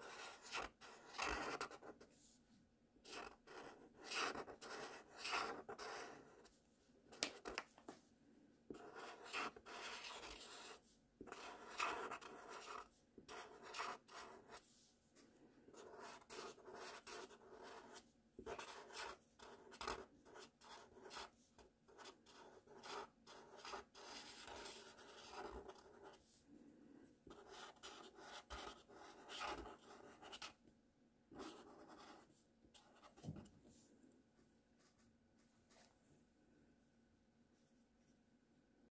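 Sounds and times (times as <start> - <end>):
marker scratching on paper: 0.0 - 2.1, 3.1 - 6.5, 8.7 - 14.6, 15.7 - 26.2, 27.3 - 30.6, 31.4 - 33.4.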